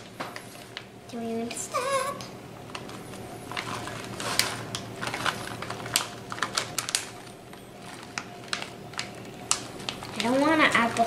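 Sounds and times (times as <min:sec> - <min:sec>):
plastic bag crinkling: 0:02.6 - 0:11.0.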